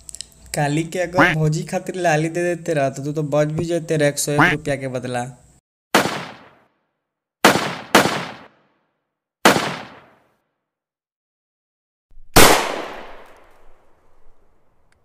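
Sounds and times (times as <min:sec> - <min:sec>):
gunshots: 0:06.0 - 0:06.7, 0:07.4 - 0:08.7, 0:09.4 - 0:10.3, 0:12.2 - 0:13.8.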